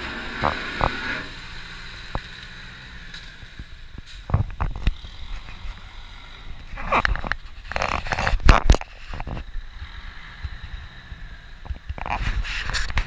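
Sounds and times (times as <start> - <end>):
low wind rumble: 0.0 - 13.0
gloved hand rubbing microphone: 12.0 - 13.0.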